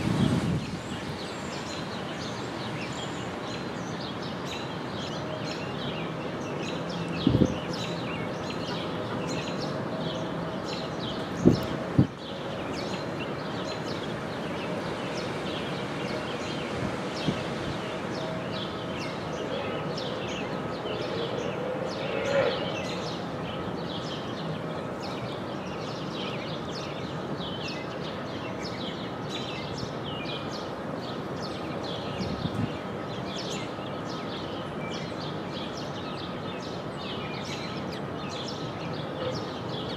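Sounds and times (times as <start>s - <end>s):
small birds chirping: 0.0s - 39.9s.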